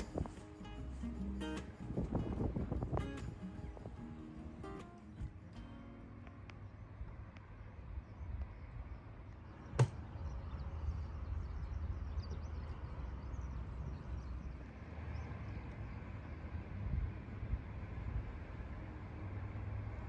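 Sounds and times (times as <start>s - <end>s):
steady low rumble: 0.0s - 19.2s.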